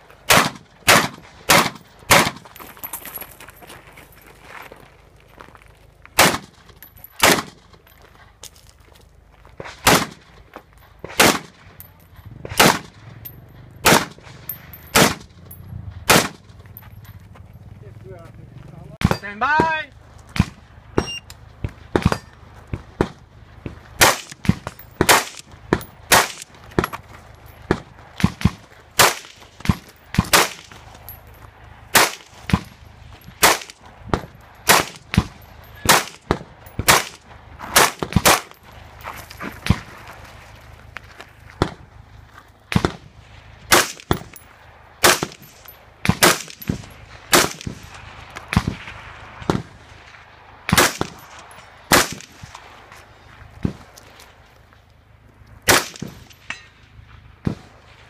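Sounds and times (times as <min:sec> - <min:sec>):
rifle shots with echo: 0:00.3 - 0:02.4, 0:06.2 - 0:06.6, 0:07.2 - 0:07.7, 0:09.8 - 0:10.3, 0:11.1 - 0:11.6, 0:12.5 - 0:13.0, 0:13.8 - 0:15.3, 0:16.1 - 0:16.5, 0:24.0 - 0:26.4, 0:27.7 - 0:29.4, 0:30.2 - 0:30.6, 0:31.9 - 0:32.7, 0:33.4 - 0:33.8, 0:34.7 - 0:37.2, 0:37.8 - 0:38.5, 0:43.7 - 0:44.3, 0:45.0 - 0:47.8, 0:50.7 - 0:51.3, 0:51.9 - 0:52.4, 0:55.7 - 0:56.3.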